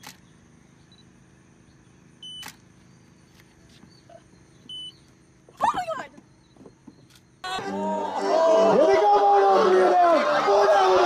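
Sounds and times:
faint background hum: 0.0s - 11.0s
camera beep: 0.9s - 1.1s, 2.2s - 2.6s, 4.7s - 5.1s
camera shutter click: 2.3s - 2.6s.

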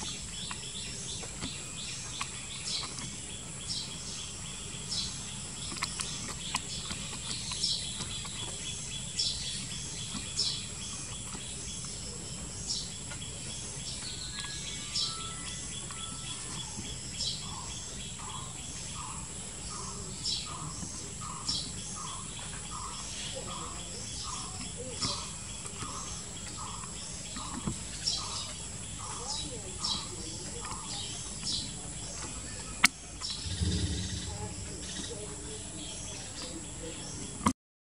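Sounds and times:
birds chirping: 0.0s - 37.5s
high insect drone: 33.5s - 36.3s.

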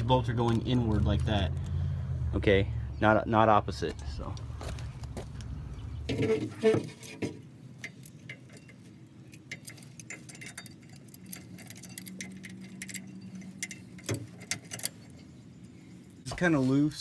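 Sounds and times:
small metallic clicks and taps: 7.8s - 16.2s.

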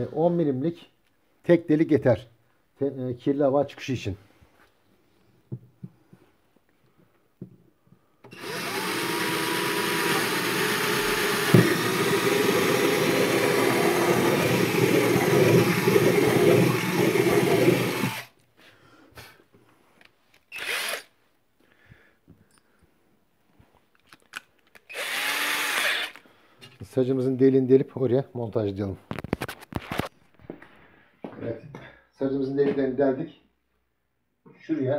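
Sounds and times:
cordless drill boring: 8.2s - 18.4s, 20.5s - 21.1s, 24.8s - 26.2s.

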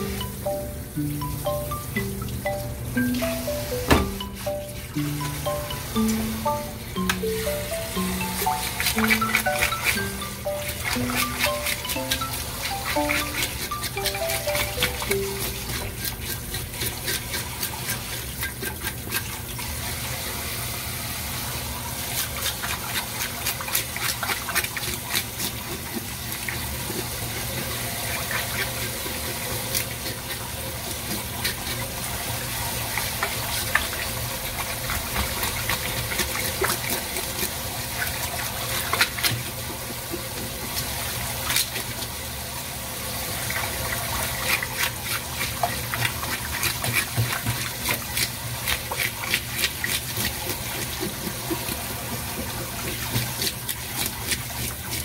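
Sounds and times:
scraping and clicking fish: 15.6s - 19.5s, 44.3s - 55.0s
tap water running into sink: 21.6s - 55.0s.

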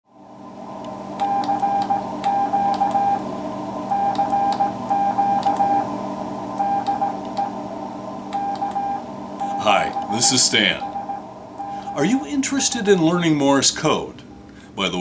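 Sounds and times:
low hum and hiss: 0.1s - 15.0s
morse code beeps: 1.2s - 3.2s, 3.9s - 5.8s, 6.6s - 7.5s, 8.4s - 12.3s.

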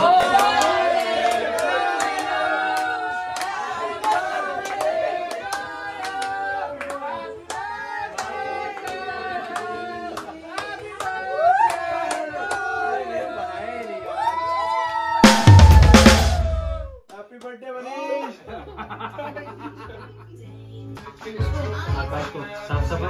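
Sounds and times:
hands clapping in rhythm: 0.0s - 12.9s, 15.2s - 16.7s
singing: 0.0s - 16.7s.

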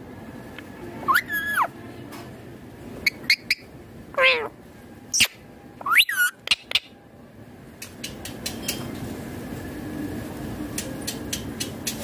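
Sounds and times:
parakeet calling: 1.1s - 1.7s, 3.0s - 4.5s, 5.1s - 6.9s.

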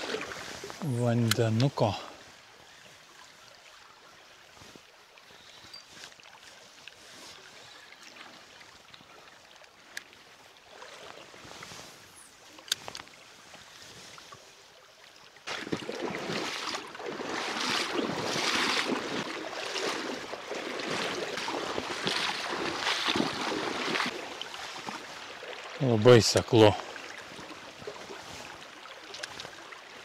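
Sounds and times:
stream trickling: 0.0s - 30.0s
footsteps splashing through water: 15.4s - 29.8s.

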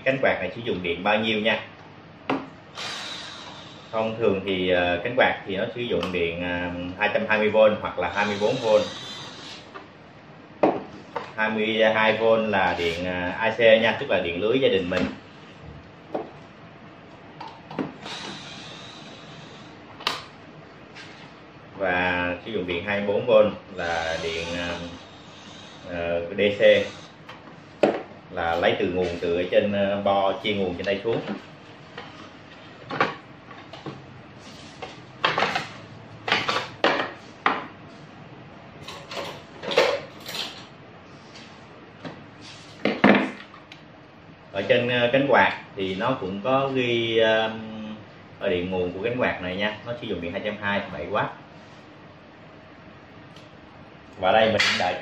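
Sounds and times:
tools knocking on wooden workbench: 10.6s - 10.9s.

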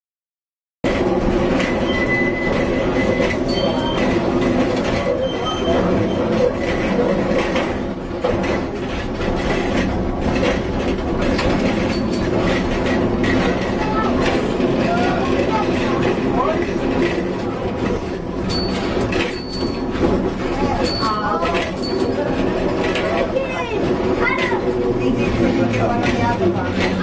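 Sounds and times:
tram wheels rumbling on rail: 0.8s - 27.0s
high wheel squeals: 1.6s - 4.3s, 5.0s - 7.0s.

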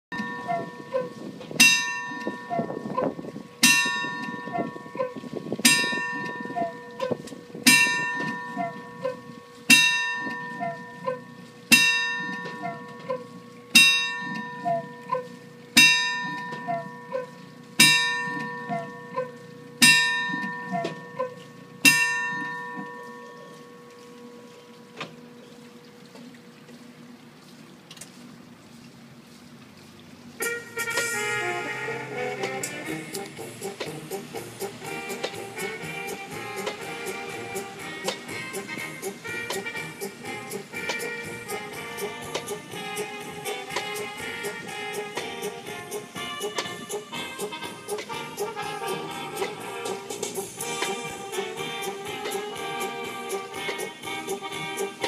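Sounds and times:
clock bell striking: 0.1s - 25.4s.

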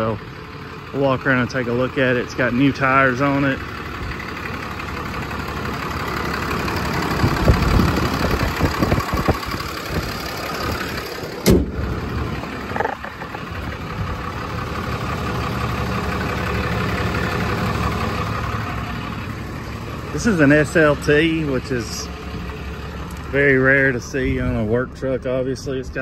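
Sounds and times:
diesel engine idling: 0.0s - 26.0s
sharp thump: 11.4s - 11.8s.

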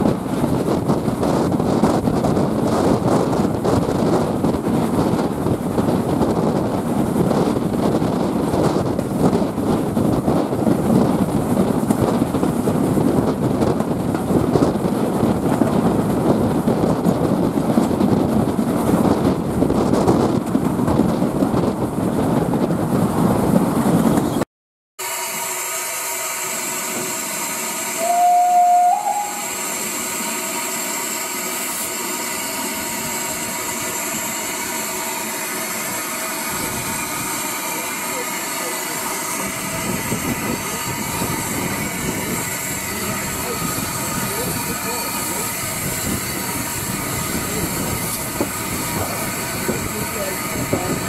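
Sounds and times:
wind rushing past train: 0.0s - 24.4s, 25.0s - 51.0s
steam whistle: 25.0s - 30.5s.

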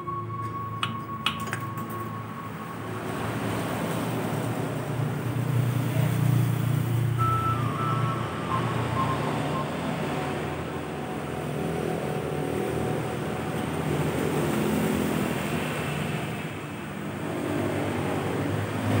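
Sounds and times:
engine running steadily: 0.4s - 19.0s.

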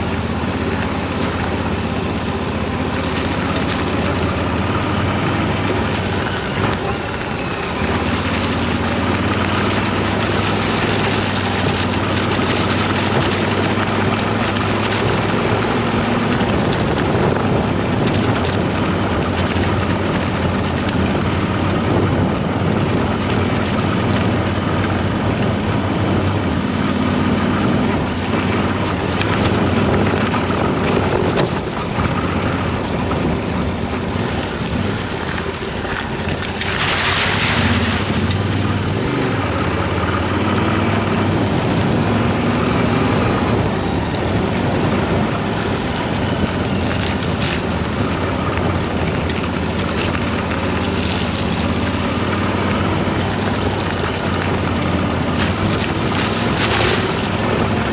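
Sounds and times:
motorcycle engine running: 0.0s - 57.9s
wind on microphone: 2.9s - 57.9s
motorcycle splashing into puddle: 7.5s - 57.9s.

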